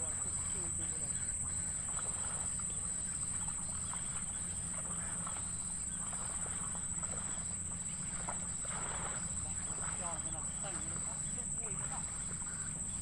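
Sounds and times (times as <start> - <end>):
faint ticks and rustles: 0.0 - 13.0
low steady rumble: 0.0 - 13.0.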